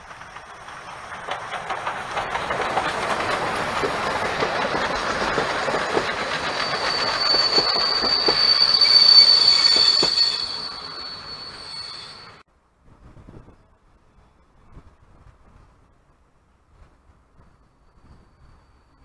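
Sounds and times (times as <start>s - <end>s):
train wheels rumbling on rails: 0.0s - 12.4s
high-pitched wheel squeal: 4.9s - 12.4s.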